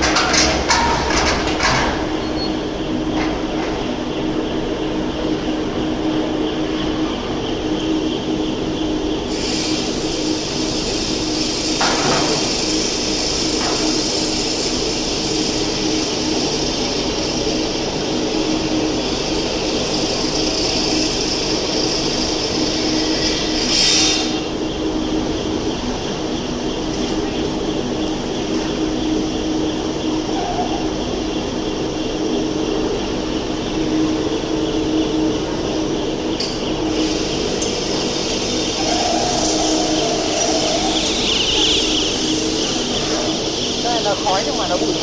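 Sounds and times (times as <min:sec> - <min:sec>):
machinery drone: 0:00.0 - 0:45.0
steady hiss: 0:09.2 - 0:26.6.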